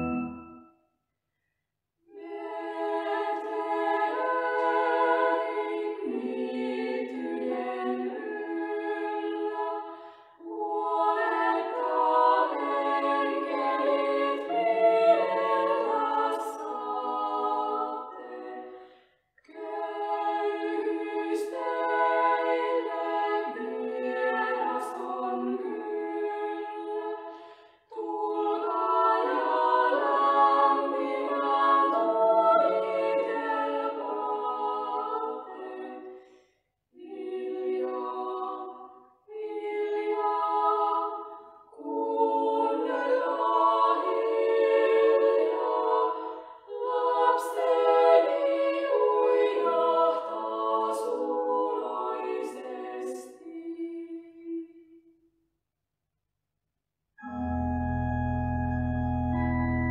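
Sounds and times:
women singing in close harmony: 0:02.1 - 0:18.8, 0:19.4 - 0:36.2, 0:37.0 - 0:55.0
singers breathing: 0:09.9 - 0:10.4, 0:18.7 - 0:19.2, 0:27.3 - 0:27.9, 0:36.1 - 0:36.7.

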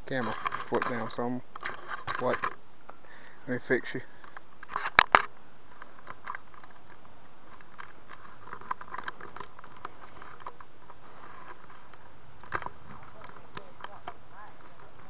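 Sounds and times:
fingers handling a camera: 0:04.3 - 0:14.2.

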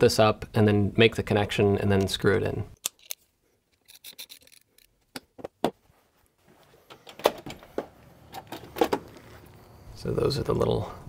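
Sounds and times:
faint background noise: 0:00.0 - 0:11.0.

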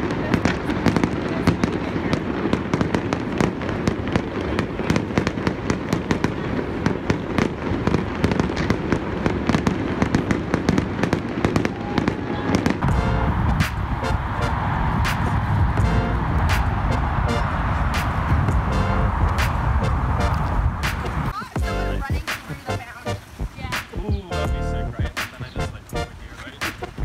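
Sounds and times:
fireworks bangs and crackles: 0:00.0 - 0:27.0
low rumble: 0:12.7 - 0:22.0.

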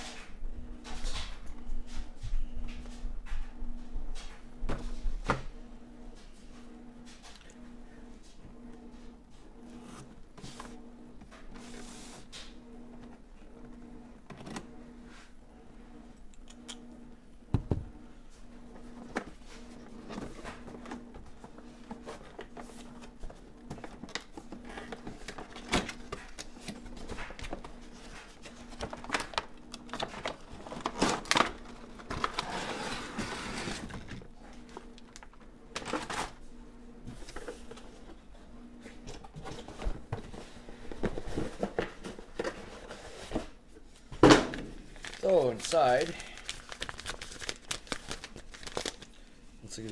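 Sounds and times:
faint steady hum: 0:00.0 - 0:49.9
rustling scrape: 0:32.3 - 0:34.1.

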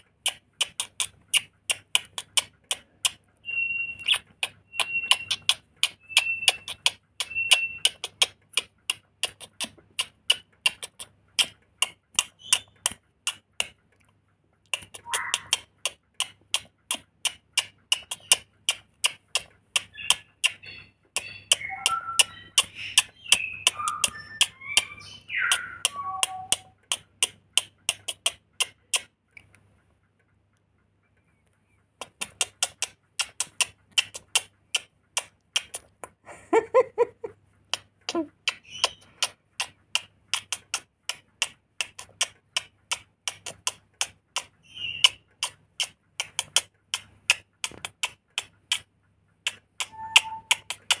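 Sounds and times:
lorikeet calling: 0:03.4 - 0:08.1, 0:15.0 - 0:15.6, 0:19.9 - 0:26.8, 0:38.6 - 0:39.2, 0:44.6 - 0:45.2, 0:49.8 - 0:50.8
finger snaps: 0:14.7 - 0:20.6, 0:21.2 - 0:29.6, 0:32.0 - 0:36.2, 0:37.7 - 0:51.0.

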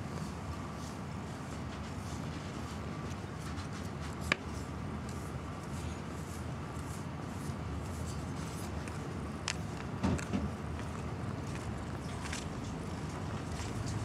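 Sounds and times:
brush scratching through fur: 0:00.1 - 0:09.0.

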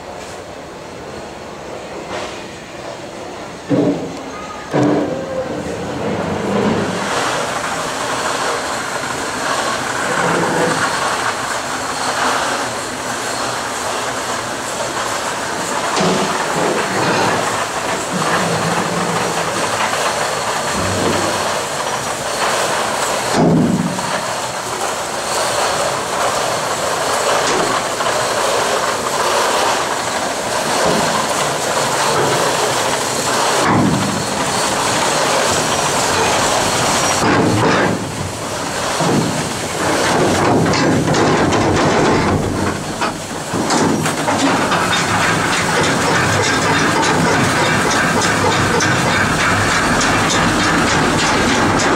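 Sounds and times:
rushing water in flume: 0:00.0 - 0:51.9
loud knocks: 0:03.7 - 0:04.1, 0:39.0 - 0:51.9
clickety-clack rattle: 0:15.0 - 0:51.9.

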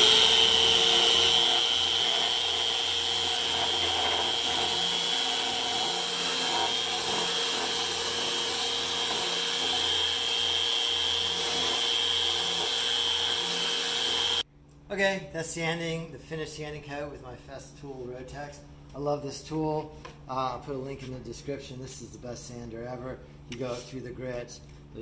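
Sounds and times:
sander whining: 0:00.0 - 0:14.4.

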